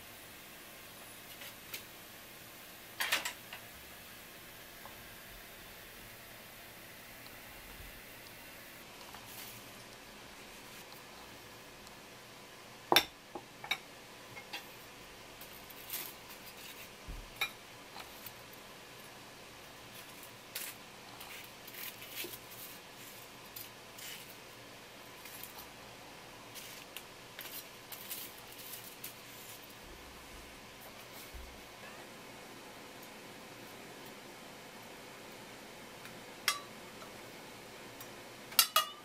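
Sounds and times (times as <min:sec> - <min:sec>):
paper and tempura rustling: 0:09.0 - 0:11.1, 0:15.4 - 0:17.0, 0:19.9 - 0:24.5, 0:26.5 - 0:29.9.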